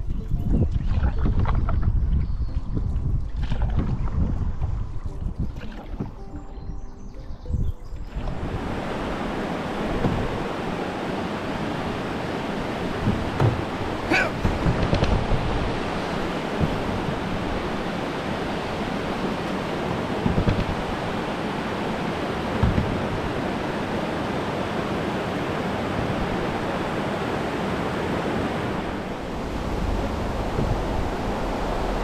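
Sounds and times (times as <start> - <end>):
water rushing over a weir: 8.1 - 32.0
low thumps: 13.0 - 17.7, 28.8 - 32.0.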